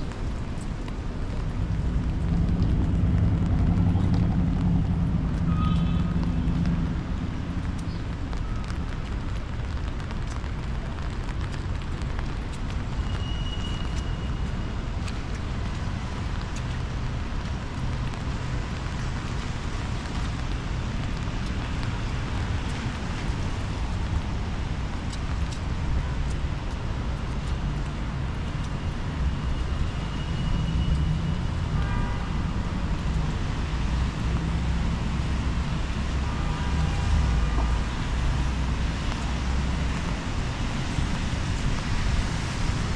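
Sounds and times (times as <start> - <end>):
low rumble of city traffic: 0.0 - 42.9.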